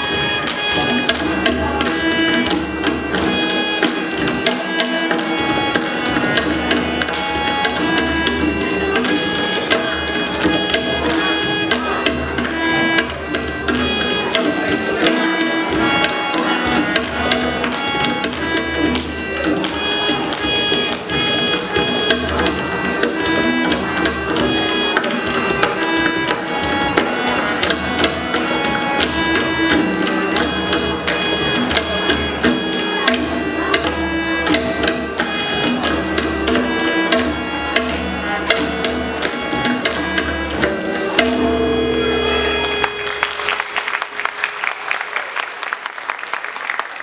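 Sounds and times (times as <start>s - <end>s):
tabla drumming: 0.0s - 44.6s
harmonium melody: 0.0s - 45.6s
audience applause: 42.6s - 47.0s.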